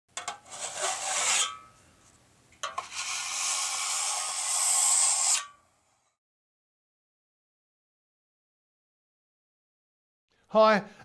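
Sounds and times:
hissy rasping scrape: 0.3s - 1.7s, 2.6s - 5.6s.

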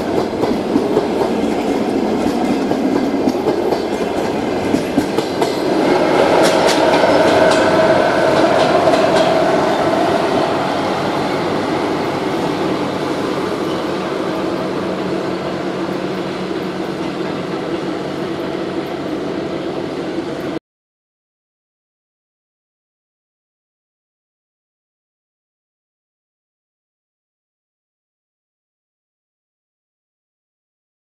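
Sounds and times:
train wheels clicking over rail joints: 0.0s - 19.3s
train wheel squeal: 5.3s - 20.6s.

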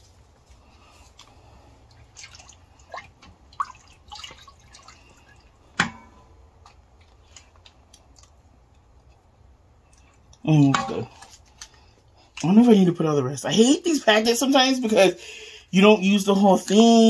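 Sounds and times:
low steady hum: 0.0s - 17.0s
liquid drips: 0.4s - 9.2s, 9.8s - 12.5s.

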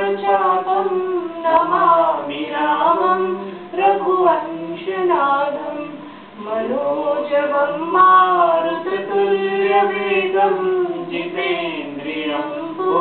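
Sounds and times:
group chanting: 0.0s - 13.0s.

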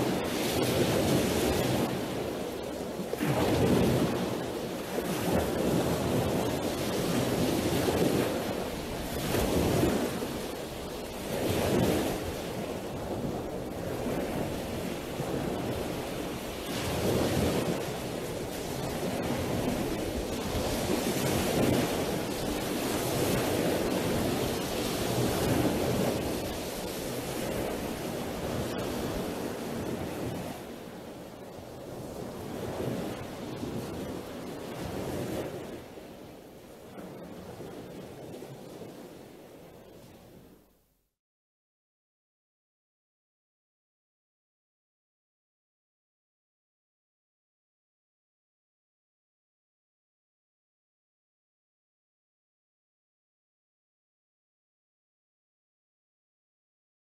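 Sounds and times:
sea waves washing onto shore: 0.0s - 40.4s.

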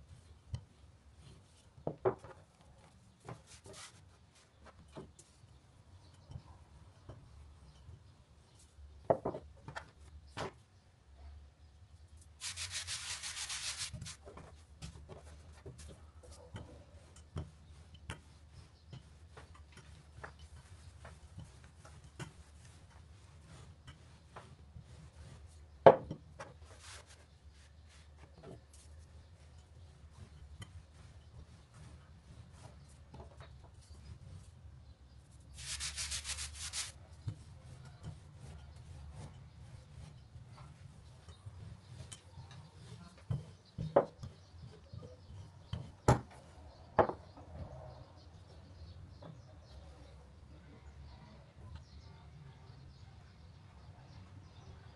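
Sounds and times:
hand rubbing flour on dough: 2.4s - 5.6s, 12.2s - 46.8s.

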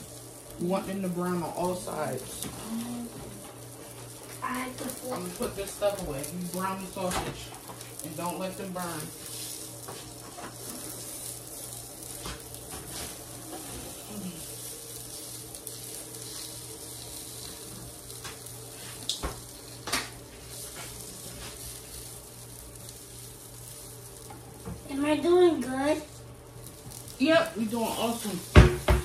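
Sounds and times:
sausages sizzling on a griddle: 0.0s - 29.0s
spatula scraping and tapping griddle: 2.0s - 24.9s, 27.7s - 29.0s.

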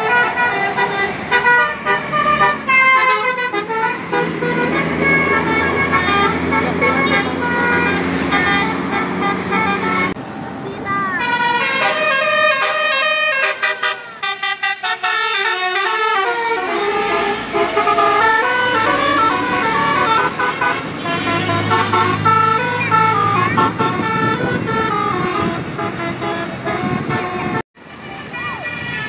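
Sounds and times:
bus musical horn playing a tune: 0.0s - 10.2s, 11.1s - 29.0s
bus engine running low: 14.0s - 29.0s.

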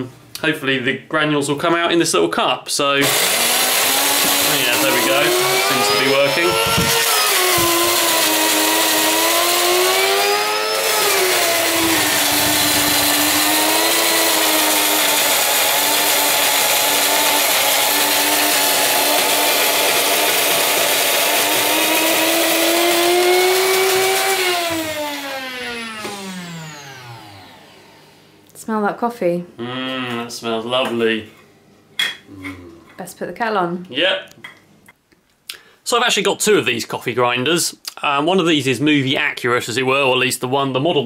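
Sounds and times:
electric coffee grinder whining: 3.0s - 28.2s.

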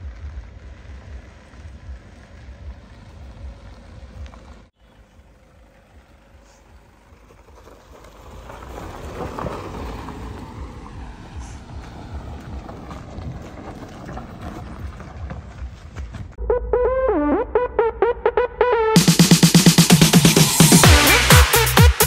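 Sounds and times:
car rumbling over rough ground: 0.0s - 16.4s
wind buffeting microphone: 8.7s - 16.4s.

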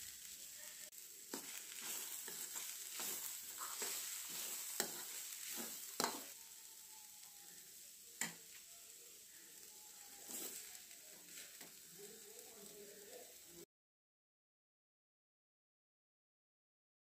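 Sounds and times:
faint frying sizzle: 0.0s - 13.7s
spoon stirring and scraping pan: 0.2s - 12.0s
spoon tapping on pan: 4.8s - 6.3s, 8.2s - 8.4s.

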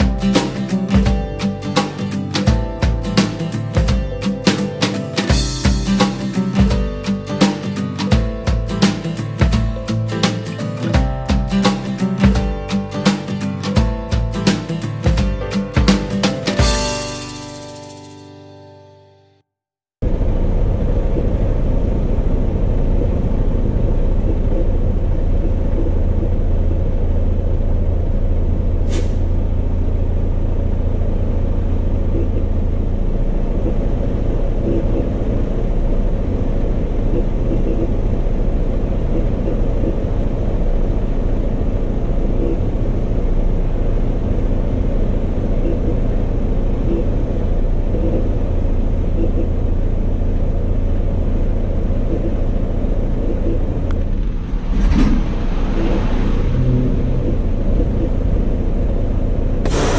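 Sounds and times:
diesel truck engine rumbling: 20.0s - 59.9s
brief sharp high sound: 59.6s - 59.9s.

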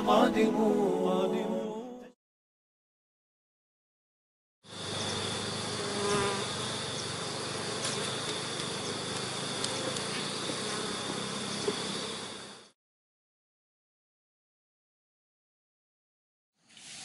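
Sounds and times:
honeybees buzzing: 4.7s - 12.7s.

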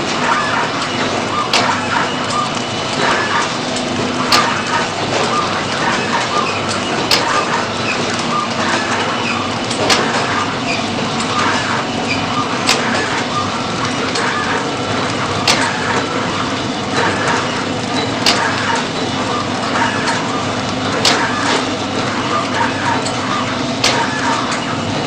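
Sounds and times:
packing machine clatter: 0.0s - 25.0s
packing machine click: 17.0s - 18.9s, 20.9s - 21.7s, 23.8s - 24.7s.

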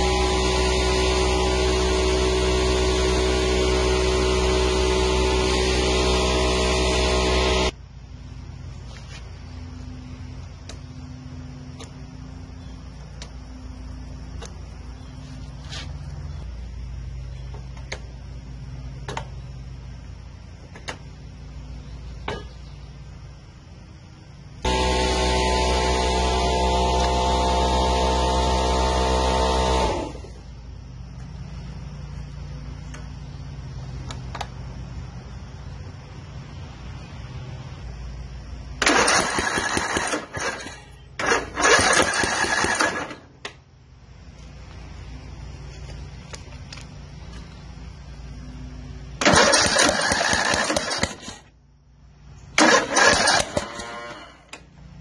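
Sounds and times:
mower engine humming: 0.0s - 55.0s
mower engine cranking on starter: 24.7s - 30.4s, 38.8s - 43.6s, 49.2s - 51.5s, 52.5s - 54.7s.

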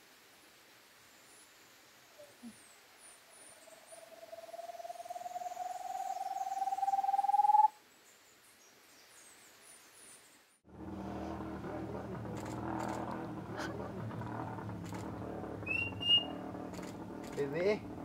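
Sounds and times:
man whistling through cupped hands: 15.7s - 16.3s.

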